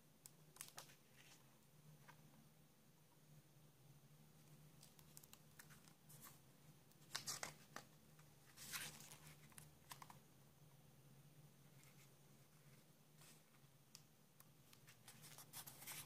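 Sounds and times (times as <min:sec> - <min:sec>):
book pages turning: 0:07.0 - 0:07.9, 0:08.5 - 0:10.2, 0:14.6 - 0:16.0.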